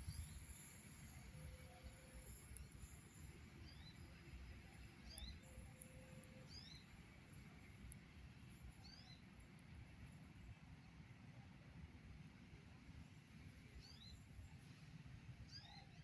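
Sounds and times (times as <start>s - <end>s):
small bird chirping: 5.0s - 7.0s, 8.8s - 9.3s, 13.8s - 14.2s, 15.5s - 16.0s.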